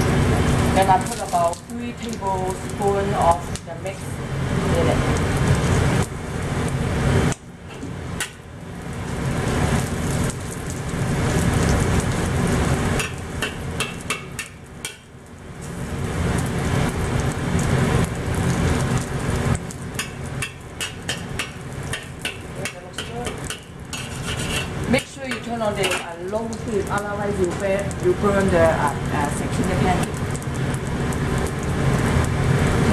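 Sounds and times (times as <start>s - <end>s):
batter sizzling in hot oil: 0.0s - 32.9s
spatula scraping and tapping a wok: 13.0s - 15.1s, 19.9s - 26.1s.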